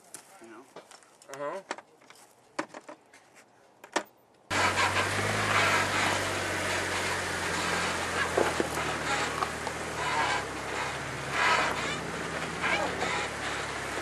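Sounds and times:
car engine running: 0:04.5 - 0:14.0.

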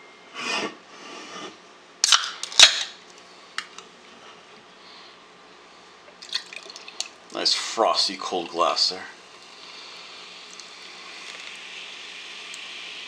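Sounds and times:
can popping open with fizz: 0:02.0 - 0:03.0, 0:10.5 - 0:11.6.

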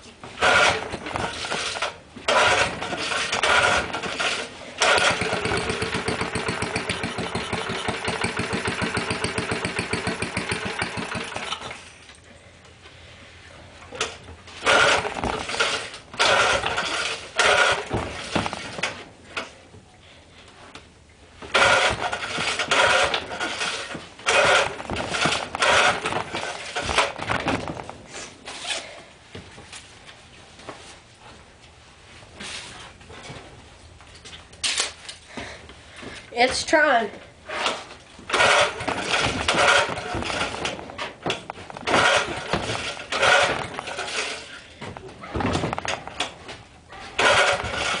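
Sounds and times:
engine cranking: 0:00.4 - 0:11.9, 0:14.0 - 0:19.0, 0:21.5 - 0:27.6, 0:37.6 - 0:44.7, 0:47.2 - 0:48.0
recoil starter pulls: 0:00.4 - 0:12.0, 0:13.9 - 0:19.5, 0:21.4 - 0:27.9, 0:37.5 - 0:44.8, 0:47.0 - 0:48.0.

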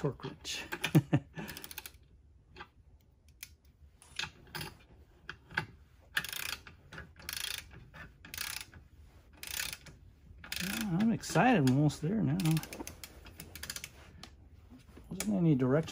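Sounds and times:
torque wrench ratchet clicking: 0:01.5 - 0:02.0, 0:06.2 - 0:08.7, 0:09.4 - 0:11.8, 0:12.4 - 0:13.9.

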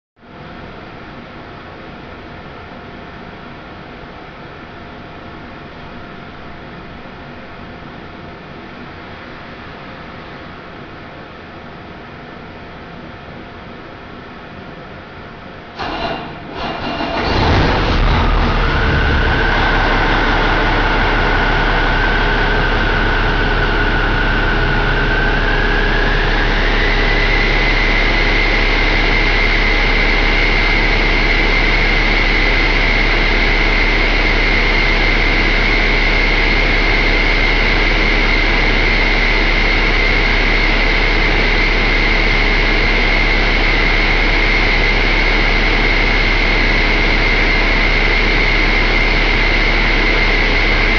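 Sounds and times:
diesel engine starting and running: 0:15.7 - 0:50.9
high whine: 0:15.8 - 0:50.9.

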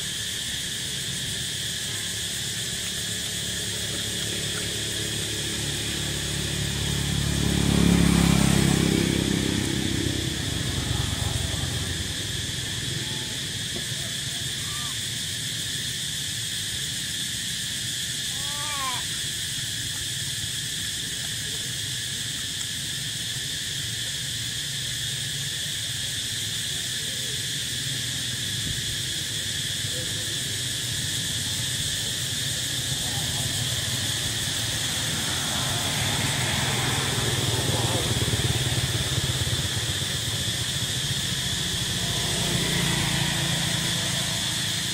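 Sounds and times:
insects droning: 0:00.0 - 0:44.9
vehicle engine approaching: 0:00.1 - 0:18.1, 0:19.2 - 0:44.9
animal call: 0:12.6 - 0:15.1, 0:18.3 - 0:19.2.

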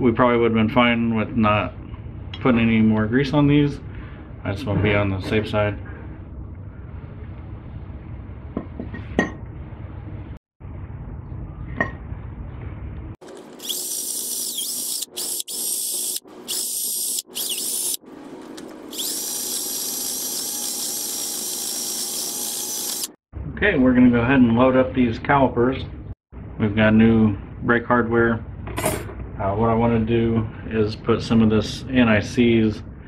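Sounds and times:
cordless drill spinning: 0:13.2 - 0:23.2.

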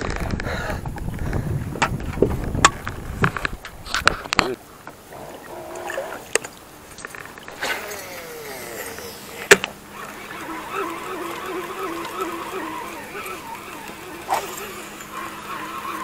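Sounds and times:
reel handle whirring: 0:00.0 - 0:16.0
reel sharp click: 0:06.3 - 0:16.0
fishing reel falling whine: 0:07.0 - 0:16.0.

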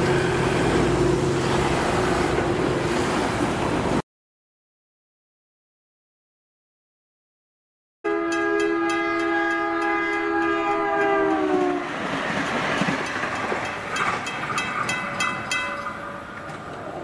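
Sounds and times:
passing train rumble: 0:00.0 - 0:04.0, 0:08.1 - 0:17.0
train horn: 0:08.0 - 0:12.1.

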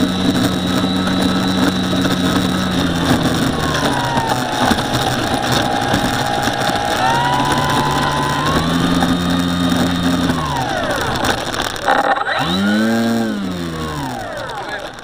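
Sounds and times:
model aircraft motor: 0:00.0 - 0:15.0.

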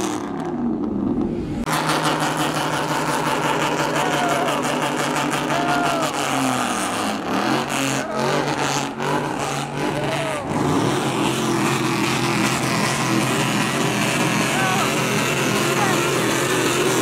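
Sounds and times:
truck engine revving: 0:00.0 - 0:17.0.

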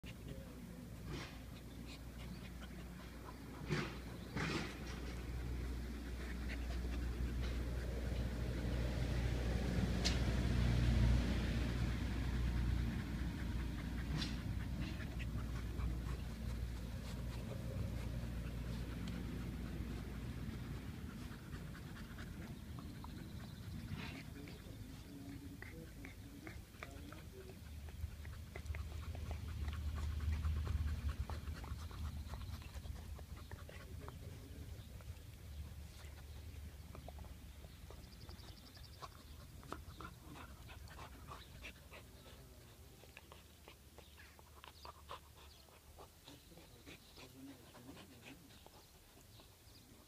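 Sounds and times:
clicks and knocks of puppies playing: 0:25.3 - 0:49.6.

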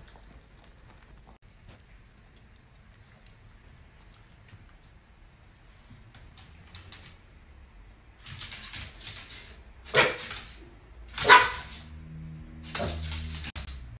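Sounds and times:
small dog barking: 0:09.9 - 0:10.3, 0:11.1 - 0:11.8.

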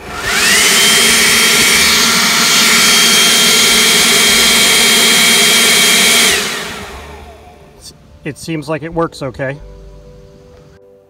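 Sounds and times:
leaf blower running: 0:00.0 - 0:07.9.

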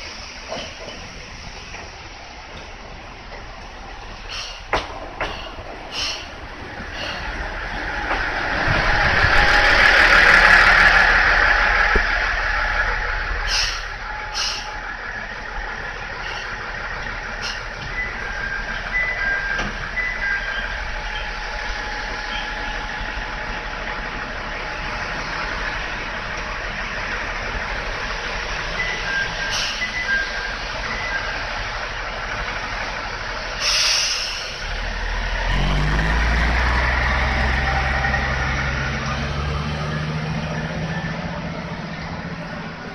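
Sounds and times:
diesel railcar engine humming: 0:00.0 - 0:42.9
air brakes hissing: 0:04.2 - 0:07.6, 0:13.4 - 0:14.9, 0:16.1 - 0:16.7, 0:17.3 - 0:17.8, 0:29.3 - 0:30.1, 0:33.6 - 0:34.7.

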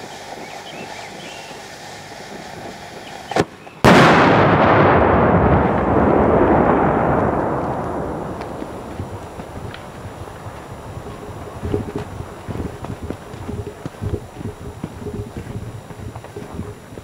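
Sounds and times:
fuse hissing: 0:00.0 - 0:04.1, 0:04.8 - 0:17.0
firecracker loud blast: 0:03.3 - 0:12.7.

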